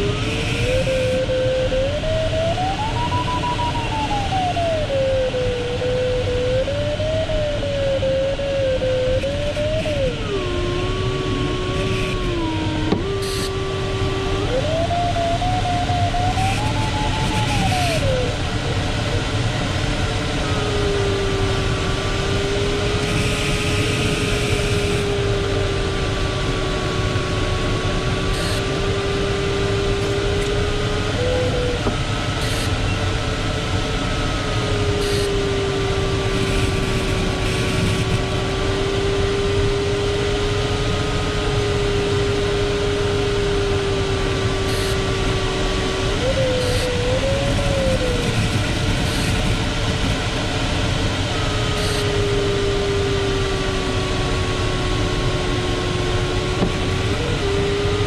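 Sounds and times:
variometer tone sliding in pitch: 0.0s - 33.1s, 34.0s - 49.8s, 51.3s - 54.5s
air rushing around cockpit: 43.4s - 58.0s.

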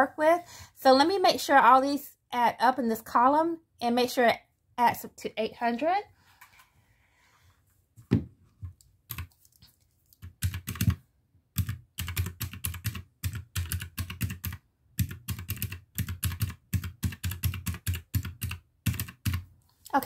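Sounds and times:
calculator keys clicking: 10.2s - 11.0s, 11.6s - 19.4s.

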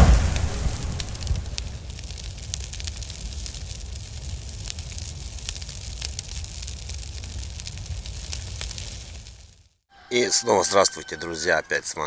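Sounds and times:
low rumble: 0.0s - 4.8s
fire crackling: 0.0s - 9.9s.

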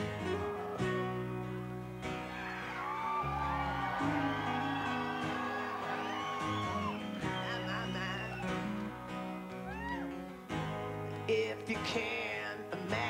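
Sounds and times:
bass guitar: 0.0s - 13.0s
strummed acoustic guitars: 0.0s - 13.0s
person singing: 2.9s - 9.0s, 11.1s - 13.0s.

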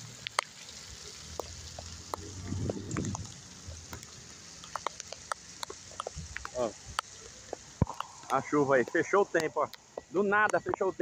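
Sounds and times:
rain falling: 0.0s - 11.0s
raindrops tapping: 0.0s - 11.0s
low steady rumble: 1.9s - 4.3s.

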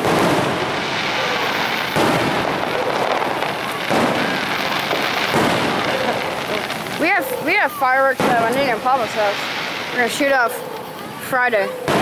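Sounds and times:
fireworks bursting: 0.0s - 12.0s
rolling fireworks rumble: 0.0s - 12.0s.

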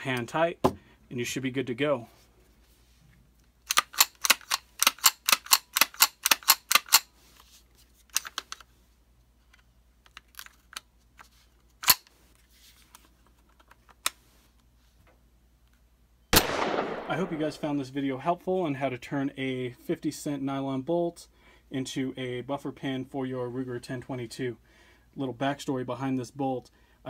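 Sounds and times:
rifle clicks: 3.6s - 7.1s, 16.4s - 17.6s.

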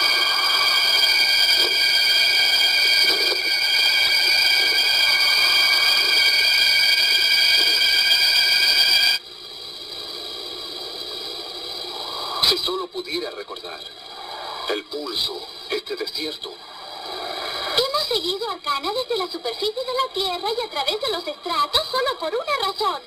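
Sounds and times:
high electronic drone: 0.0s - 12.6s
hiss: 0.0s - 12.8s, 13.9s - 15.8s, 16.6s - 18.2s.

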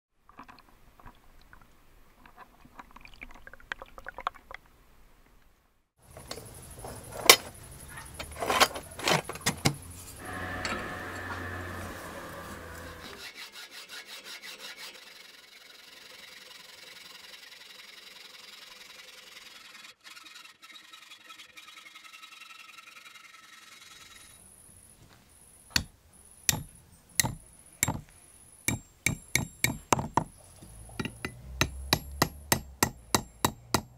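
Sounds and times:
hacksaw rasping through metal: 12.4s - 15.7s, 26.5s - 28.1s, 28.7s - 30.3s, 31.0s - 33.9s
hammer tapping on metal: 25.7s - 30.3s, 30.9s - 33.9s
metal knocks and clinks: 26.5s - 28.1s, 28.7s - 33.9s.

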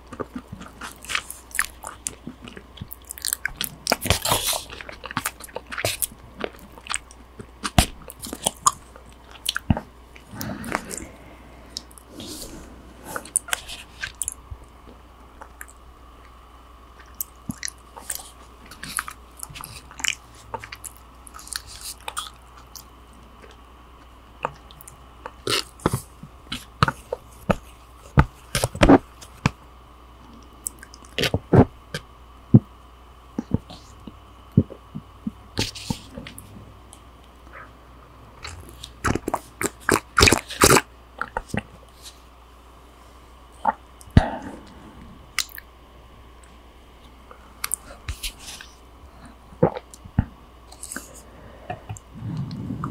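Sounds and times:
person chewing and biting: 0.0s - 14.4s, 17.0s - 23.6s, 24.4s - 27.7s, 38.4s - 42.1s, 45.3s - 45.6s.

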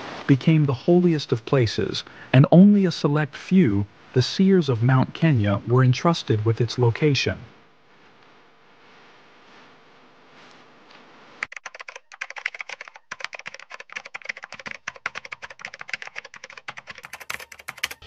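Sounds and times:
faint hiss: 0.0s - 11.4s
keyboard typing clicks: 11.4s - 18.0s.

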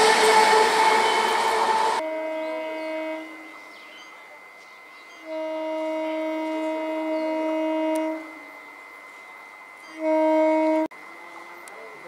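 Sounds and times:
train horn blasts: 0.0s - 3.6s, 5.2s - 8.6s, 9.8s - 11.4s.

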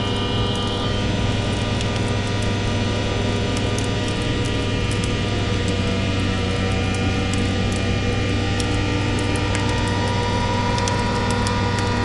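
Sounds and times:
faint crackles: 0.0s - 12.0s
steady low hum: 0.0s - 12.0s
sustained electronic drone tones: 0.0s - 12.0s.

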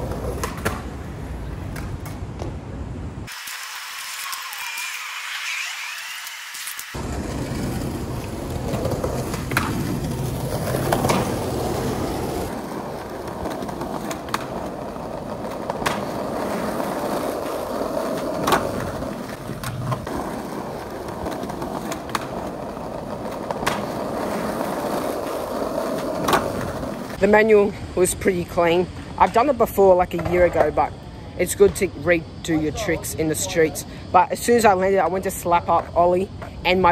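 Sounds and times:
skateboard clacking on ground: 0.0s - 2.5s, 3.3s - 27.2s
skateboard wheels rolling on pavement: 0.0s - 36.9s.

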